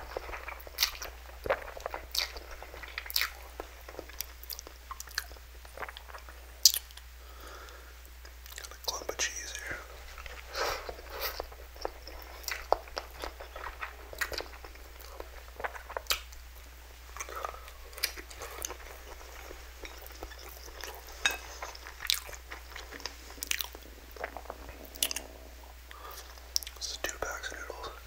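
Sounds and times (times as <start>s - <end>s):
mouth chewing noodles: 0.0s - 28.0s
wet mouth clicks and smacks: 16.0s - 16.4s.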